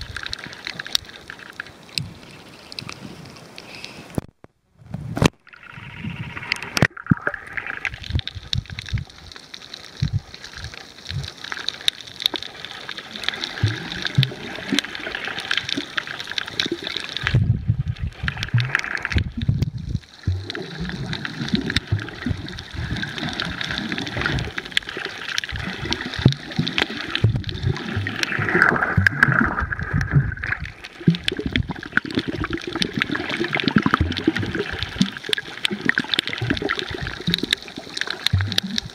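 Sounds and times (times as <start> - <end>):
muffled underwater water rushing: 0.0 - 4.2, 4.8 - 38.9
bubbly crackle: 0.0 - 38.9.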